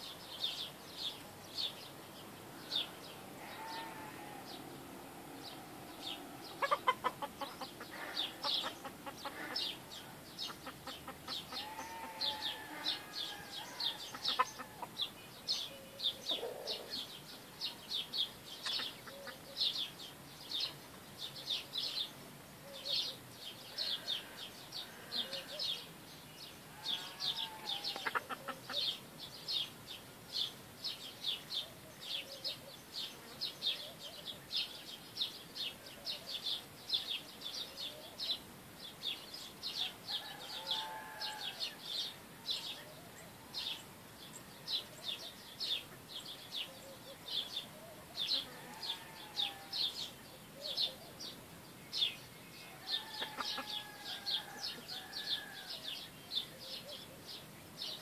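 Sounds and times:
chickens clucking: 0:05.5 - 0:15.0, 0:16.2 - 0:17.0, 0:18.6 - 0:19.4, 0:27.0 - 0:29.0, 0:52.9 - 0:53.9.

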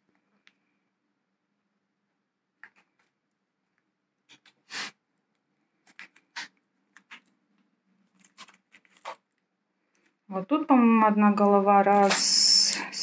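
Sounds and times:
plastic plant pot crinkling: 0:08.1 - 0:09.4, 0:11.8 - 0:13.0.

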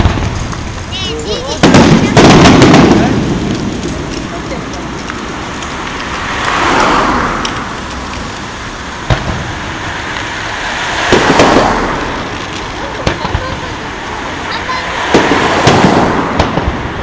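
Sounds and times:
firework bang: 0:00.0 - 0:04.2, 0:09.0 - 0:17.0
cars passing: 0:00.0 - 0:17.0.

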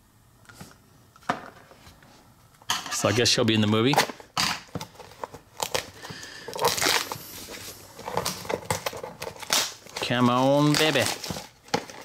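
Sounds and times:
cardboard packaging tearing and crinkling: 0:05.0 - 0:12.0.

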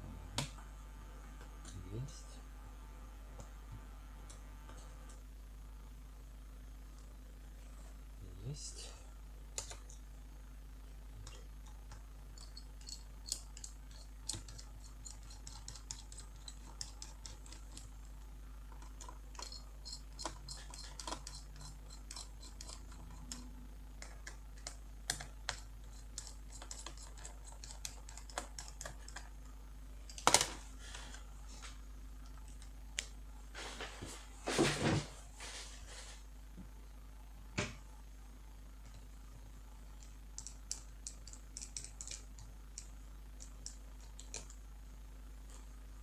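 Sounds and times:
screwdriver clicking on screws: 0:12.4 - 0:17.8, 0:18.8 - 0:23.4.

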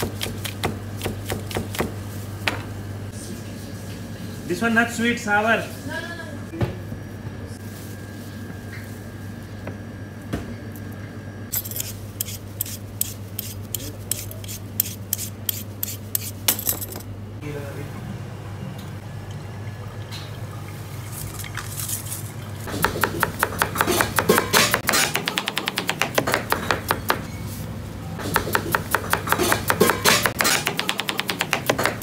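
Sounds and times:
knife chopping on plastic board: 0:28.3 - 0:32.0.

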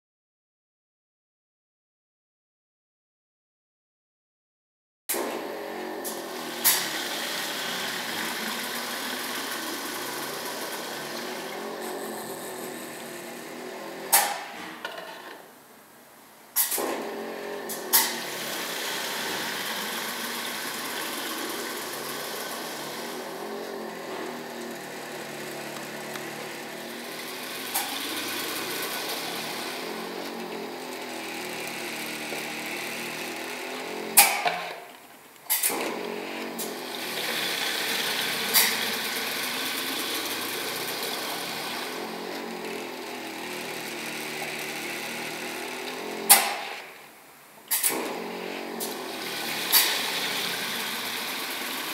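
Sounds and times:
filling machine running: 0:05.1 - 0:14.4, 0:16.7 - 0:34.9, 0:35.5 - 0:47.0, 0:47.7 - 0:51.9
sharp mechanical clacks: 0:14.1 - 0:15.3, 0:16.6 - 0:18.4, 0:27.4 - 0:36.8, 0:45.8 - 0:46.9.

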